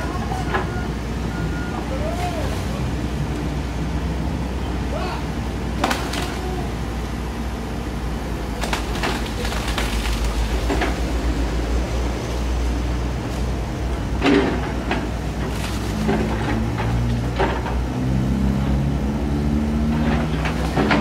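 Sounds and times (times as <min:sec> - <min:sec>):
excavator diesel engine running: 0:00.0 - 0:21.0
tree branches snapping: 0:05.8 - 0:06.5.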